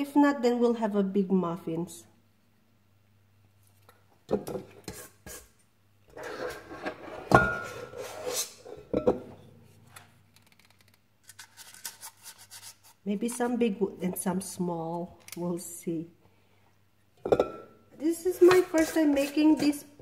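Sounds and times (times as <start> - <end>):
metal scoop scraping a bowl: 6.1 - 9.0, 18.2 - 20.0.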